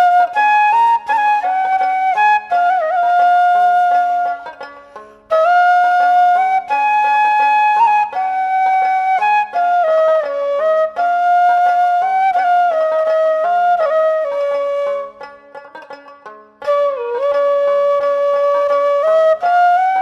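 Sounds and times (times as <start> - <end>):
flute melody: 0.0 - 15.7, 16.6 - 20.0.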